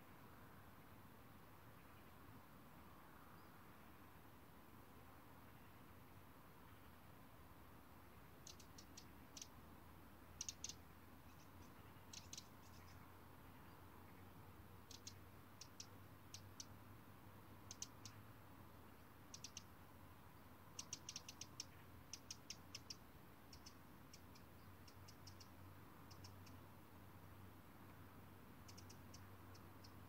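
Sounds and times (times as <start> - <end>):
faint high-pitched clicks: 8.4 - 9.6, 10.4 - 13.0, 14.8 - 16.8, 17.6 - 18.2, 19.3 - 19.8, 20.7 - 26.6, 28.6 - 30.0.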